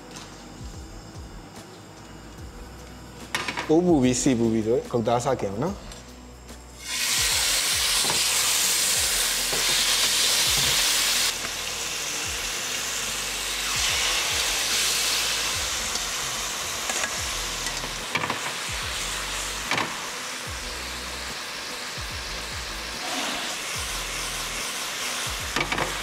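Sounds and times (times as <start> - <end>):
meat sizzling in a frying pan: 6.8 - 26.0.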